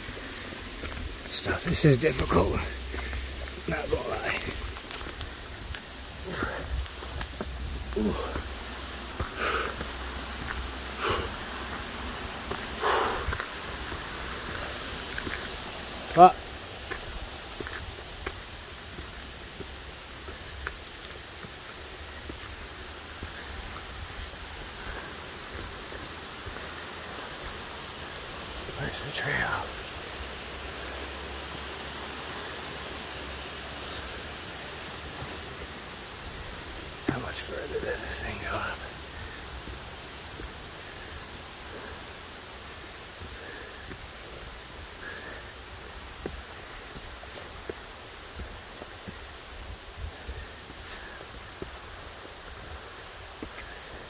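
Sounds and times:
distant falling water: 0.0 - 54.0
heavy breathing: 6.1 - 11.9, 12.5 - 14.8, 40.8 - 42.3, 43.1 - 47.6.

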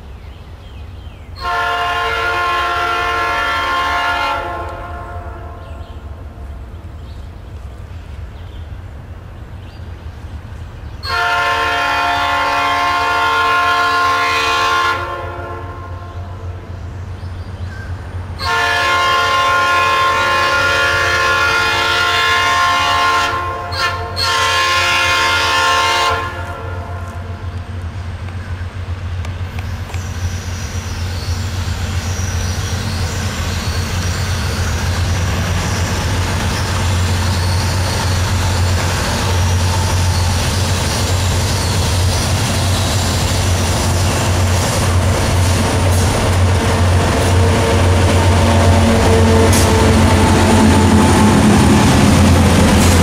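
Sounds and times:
freight train rumbling: 0.0 - 53.0
locomotive air horn blasts: 1.4 - 5.6, 11.0 - 16.2, 18.4 - 27.4, 46.7 - 51.5
diesel engines rumbling: 15.8 - 53.0.

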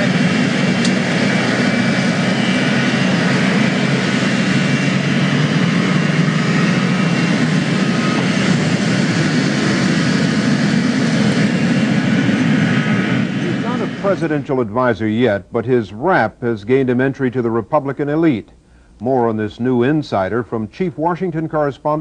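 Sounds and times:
jet engines roaring: 0.0 - 15.1.

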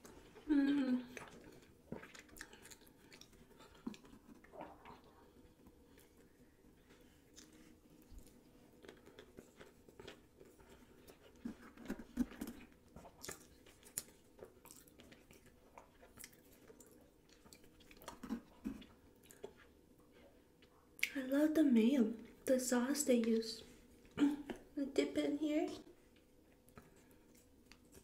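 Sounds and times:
person chewing food: 0.0 - 21.1.

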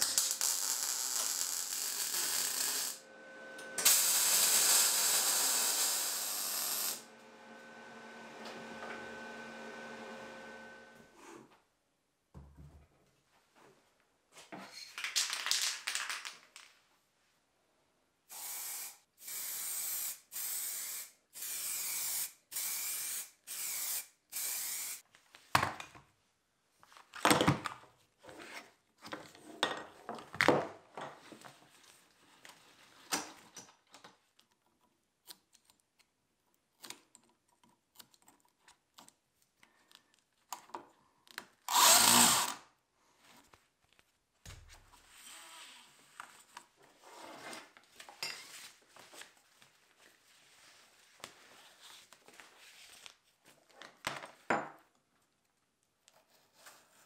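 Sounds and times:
power drill bursts: 3.7 - 7.1, 41.7 - 42.6.

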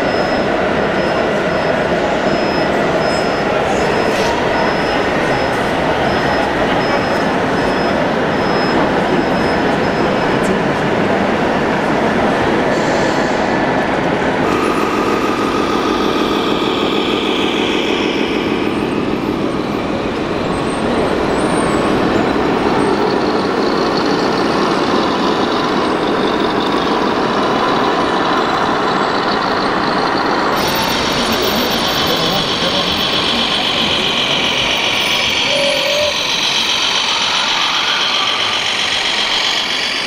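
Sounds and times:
toy truck diesel engine sound: 0.0 - 40.0.

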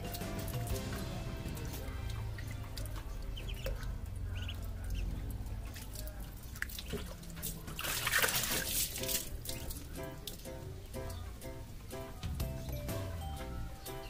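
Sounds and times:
ducklings peeping: 0.0 - 7.2
ducklings splashing in water: 0.0 - 11.8.

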